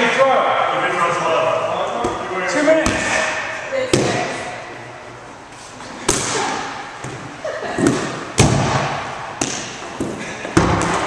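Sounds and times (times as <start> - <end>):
rubber balls thudding with echo: 2.8 - 4.5, 6.0 - 11.0.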